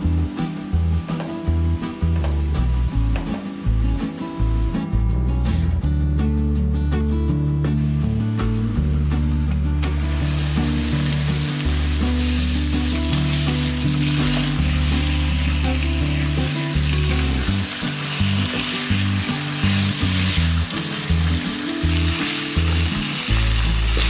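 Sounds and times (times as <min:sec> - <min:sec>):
background music: 0:00.0 - 0:24.0
meat sizzling in a wok: 0:09.8 - 0:24.0.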